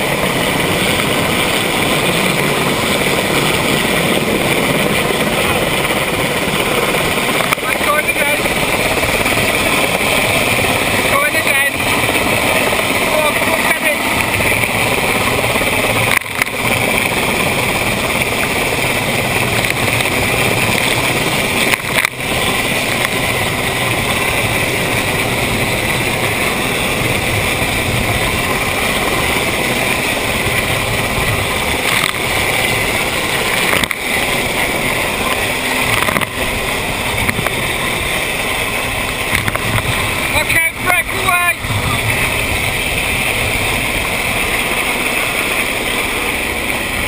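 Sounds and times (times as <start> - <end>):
outboard engine: 0.0 - 47.0
rushing water: 0.0 - 47.0
wind: 0.0 - 47.0.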